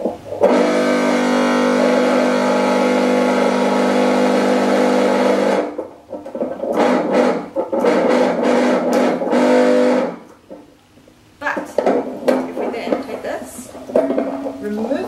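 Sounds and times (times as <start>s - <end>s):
electric motor buzzing drone: 0.5s - 5.7s.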